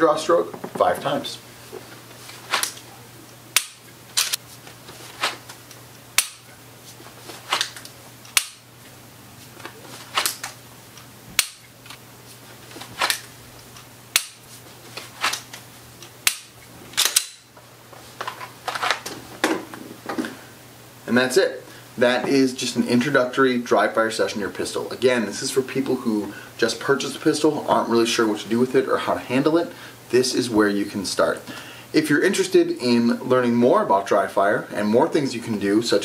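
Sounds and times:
clothing rustling: 0.8 - 3.0, 4.3 - 5.6, 6.8 - 7.9, 8.8 - 10.5, 11.8 - 13.8, 14.4 - 15.9
pistol clicks: 3.6 - 4.4, 8.3 - 8.6, 11.4 - 11.6, 14.1 - 14.4, 16.2 - 17.4.

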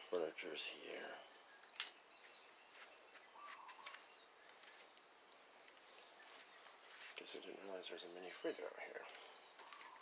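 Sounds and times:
high-pitched insect trill: 0.0 - 10.0
bird chirps: 0.9 - 10.0
warbled bird call: 3.1 - 4.8, 9.6 - 10.0.

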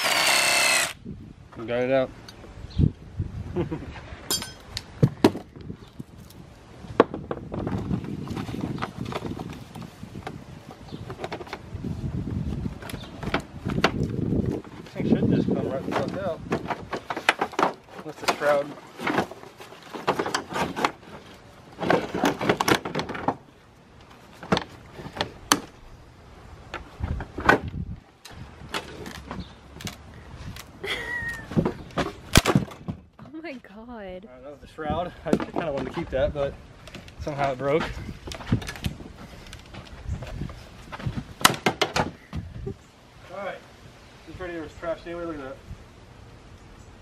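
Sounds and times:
rustling and scraping: 3.8 - 25.8, 26.6 - 30.7, 35.2 - 42.5
metallic clinks and knocks: 4.3 - 4.7.

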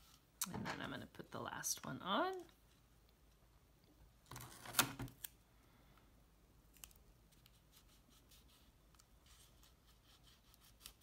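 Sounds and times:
masking tape rustling: 6.7 - 11.0.

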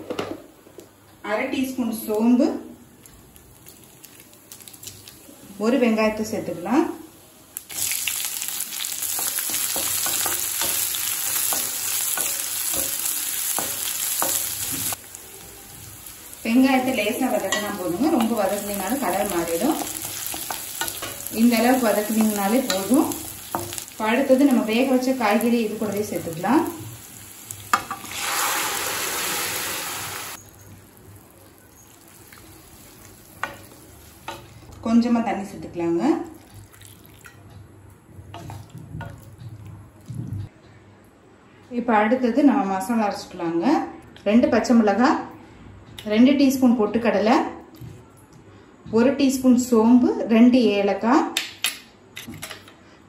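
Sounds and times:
onions sizzling in hot oil: 3.2 - 34.7.

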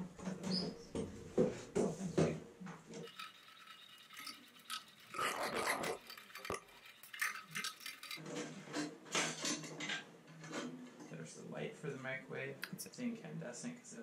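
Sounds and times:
screwdriver scraping: 3.0 - 8.2.

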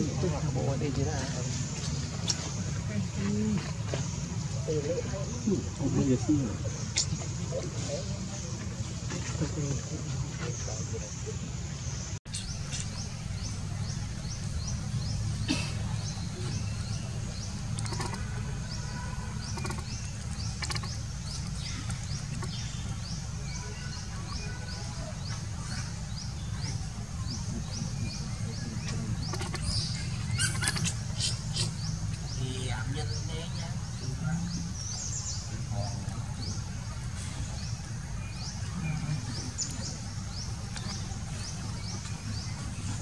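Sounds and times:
steady low rumble: 11.2 - 24.4.

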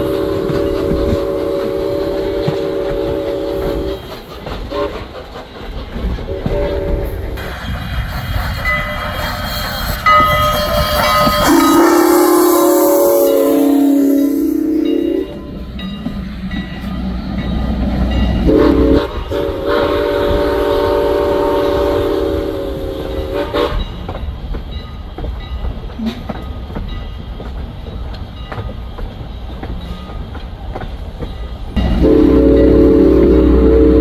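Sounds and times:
steam locomotive chime whistle: 0.0 - 5.1, 8.6 - 24.0, 31.8 - 34.0
train running noise: 0.0 - 34.0.

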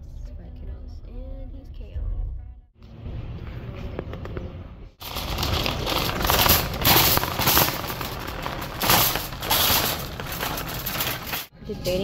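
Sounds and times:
shopping cart rattling: 5.0 - 12.0.

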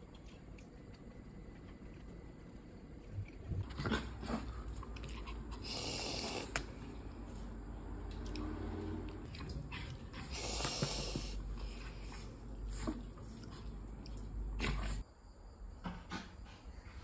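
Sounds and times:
steady low hum: 0.0 - 15.3
puppies sniffing: 4.0 - 6.9, 9.4 - 13.8.

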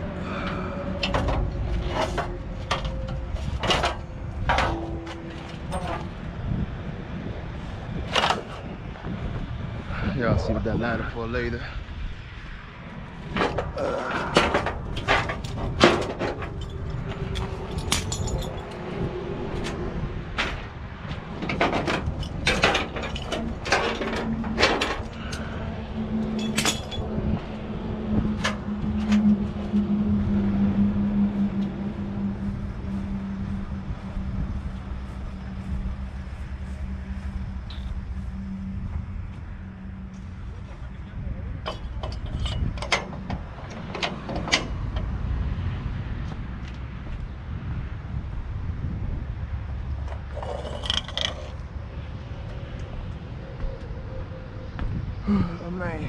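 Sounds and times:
metal clanks and knocks: 0.3 - 6.6, 8.0 - 8.8, 13.2 - 30.0, 41.5 - 45.2, 50.1 - 51.6.

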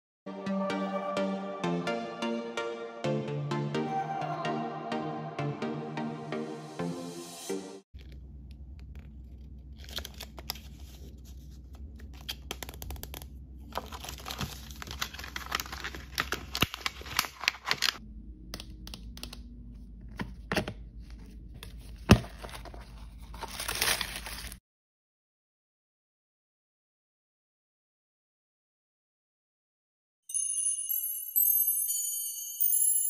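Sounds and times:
plastic bag crinkling: 13.8 - 18.0, 22.4 - 24.6
cardboard tearing: 22.0 - 24.6.

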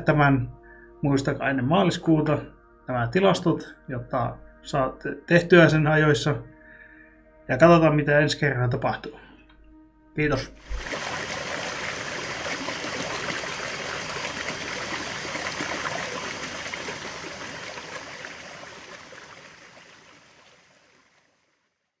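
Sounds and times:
stream rushing over rocks: 10.6 - 21.2.

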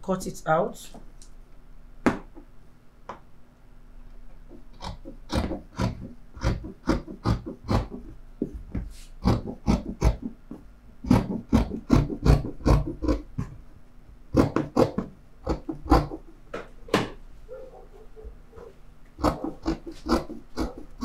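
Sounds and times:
scissors cutting fabric: 19.2 - 21.0.

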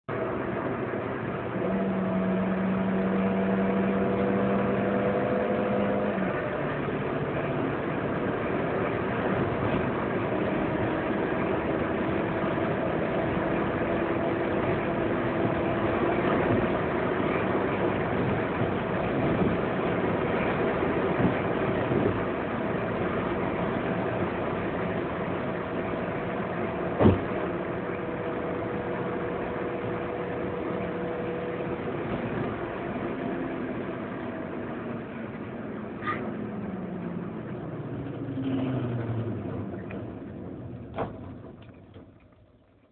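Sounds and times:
car engine at high speed: 0.0 - 42.9
road noise: 0.0 - 42.9
wind noise: 14.5 - 25.9
short knock: 27.0 - 27.3.

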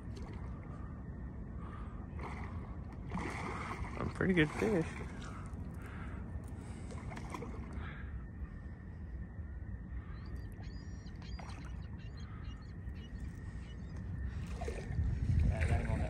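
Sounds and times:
wind rumble on microphone: 0.0 - 16.0
faint bird chirps: 4.3 - 15.0.

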